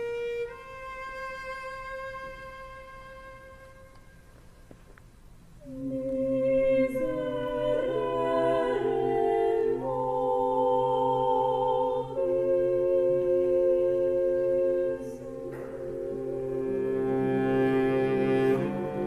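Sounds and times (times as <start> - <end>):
mixed choir singing chords: 5.6 - 19.0.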